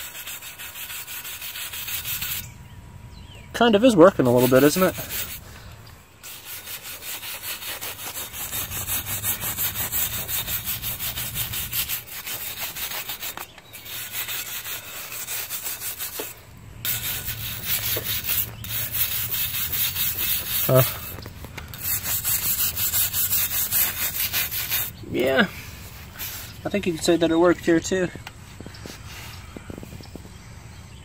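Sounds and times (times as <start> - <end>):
wire brush scraping metal: 0.0 - 2.5, 4.0 - 5.6, 6.2 - 24.9.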